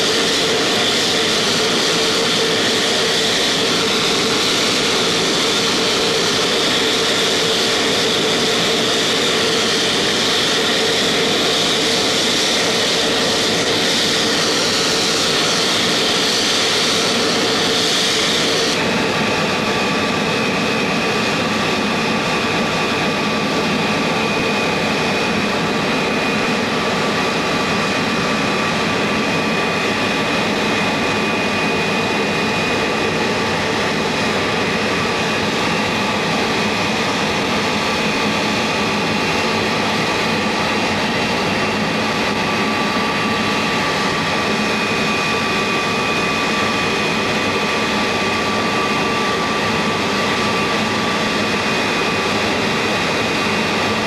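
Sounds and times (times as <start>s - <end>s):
jet turbine whine and rush: 0.0s - 54.0s.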